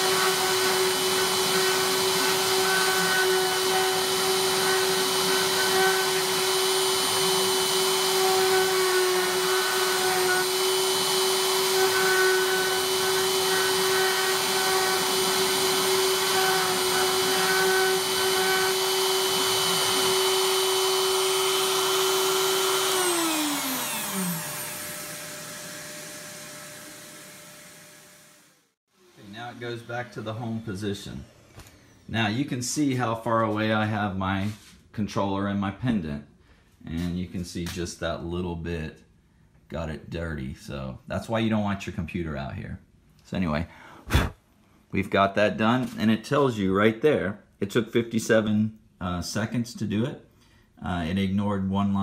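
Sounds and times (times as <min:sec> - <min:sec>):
router whining cutting wood: 0:00.0 - 0:32.1.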